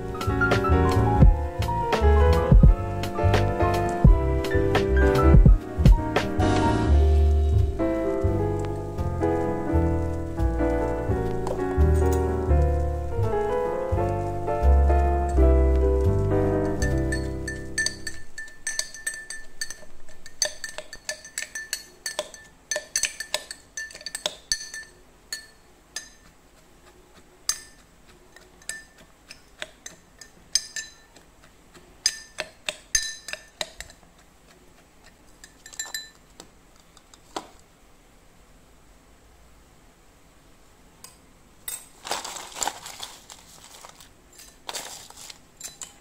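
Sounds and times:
metal spoon clinking against glass: 0:16.7 - 0:26.3, 0:27.5 - 0:27.8, 0:28.6 - 0:31.2, 0:32.0 - 0:34.0, 0:35.4 - 0:36.2, 0:45.6 - 0:46.0.

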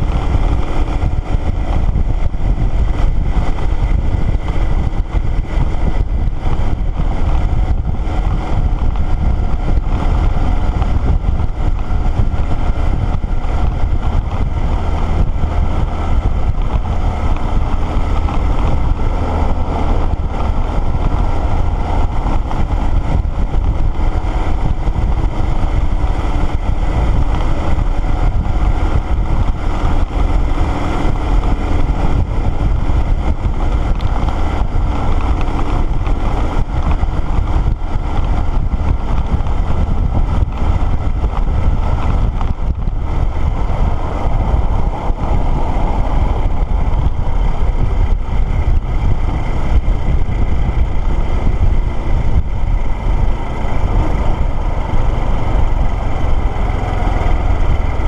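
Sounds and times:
motorcycle engine running: 0:00.0 - 0:58.0
wind rushing: 0:00.0 - 0:58.0.

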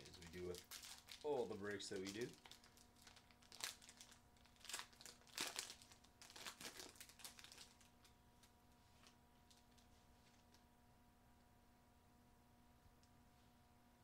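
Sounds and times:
foil wrapper crinkling: 0:00.0 - 0:10.5.

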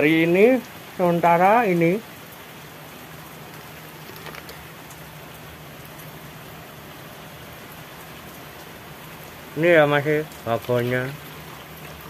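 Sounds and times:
steady rain hiss: 0:00.0 - 0:12.0
faint drip ticks: 0:10.1 - 0:12.0.

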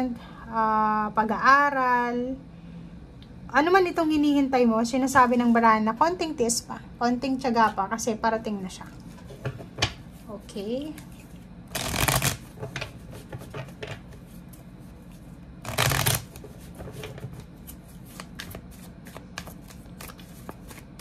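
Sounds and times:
cards being shuffled: 0:11.0 - 0:21.0.

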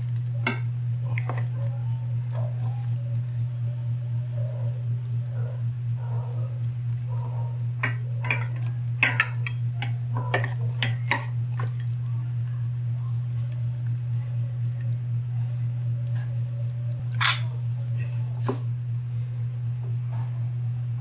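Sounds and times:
low hum: 0:00.0 - 0:21.0
metal spoon clinking on pot: 0:07.8 - 0:11.3, 0:17.2 - 0:17.5.

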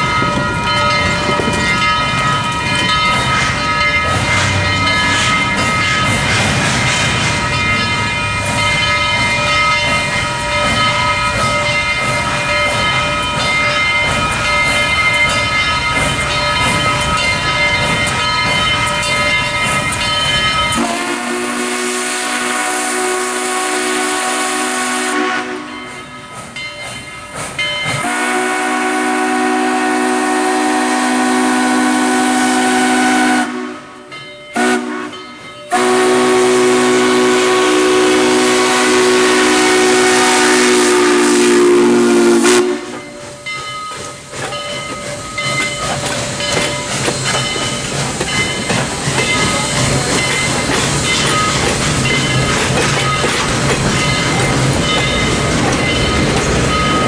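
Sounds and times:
crossing signal bell ringing: 0:00.0 - 0:06.4, 0:07.2 - 0:21.4, 0:25.2 - 0:28.7, 0:33.5 - 0:37.0, 0:39.2 - 0:57.0
steam locomotive chime whistle: 0:00.0 - 0:06.4, 0:07.3 - 0:57.0
oncoming train noise: 0:00.0 - 0:57.0.

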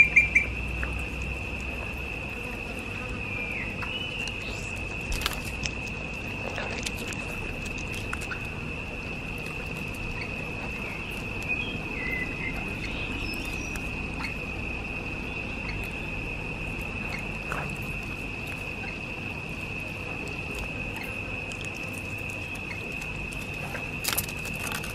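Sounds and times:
steady high-pitched whine: 0:00.0 - 0:24.9
dog chewing and lapping: 0:04.2 - 0:10.9.

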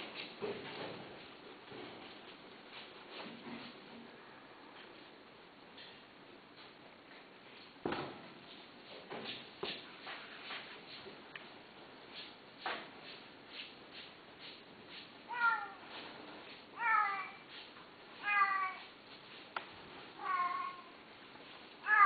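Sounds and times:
cat meowing: 0:15.3 - 0:15.8, 0:16.8 - 0:17.4, 0:20.2 - 0:20.9.

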